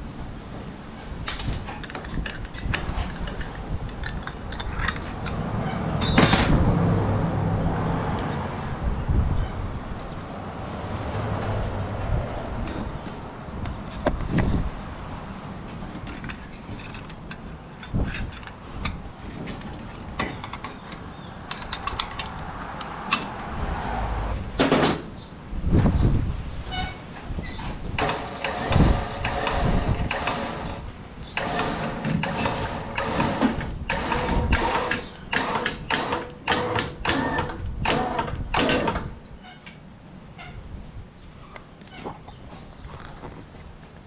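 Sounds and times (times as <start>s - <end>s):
metal parts clicking and knocking: 1.3s - 6.6s, 15.7s - 23.3s.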